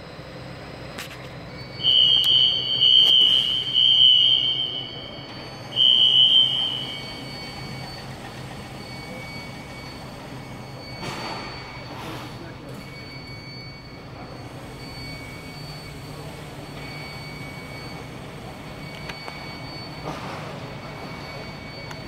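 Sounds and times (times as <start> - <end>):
fire alarm high-pitched tone: 0.0 - 22.0.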